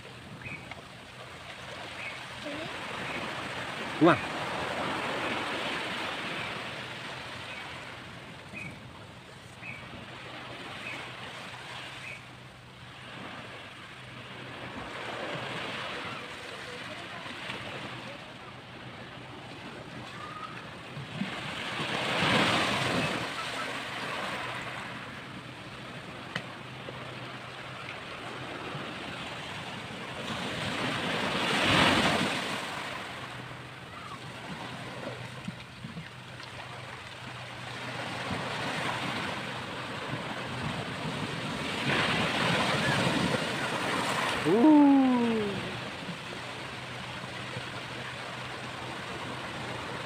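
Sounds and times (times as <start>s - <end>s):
waves breaking on beach: 0.0s - 50.0s.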